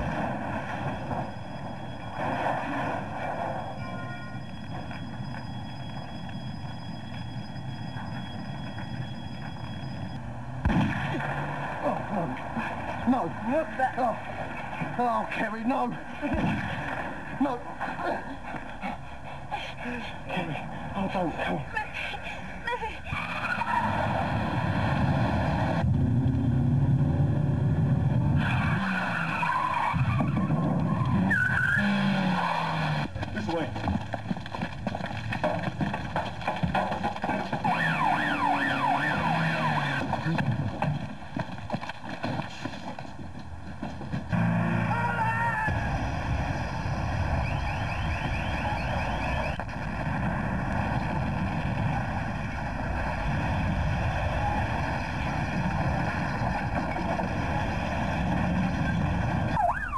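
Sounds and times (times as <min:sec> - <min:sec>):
fast warbling siren tone: 0:00.0 - 0:11.6, 0:23.1 - 0:25.8, 0:28.1 - 0:33.1, 0:37.6 - 0:40.4, 0:44.3 - 0:49.8, 0:51.8 - 0:59.9
low rumbling noise: 0:00.0 - 0:21.4, 0:22.2 - 0:59.9
car engine: 0:06.7 - 0:15.2, 0:23.1 - 0:59.9
tyres skidding and squealing: 0:22.8 - 0:25.8, 0:28.1 - 0:43.2, 0:43.8 - 0:49.7.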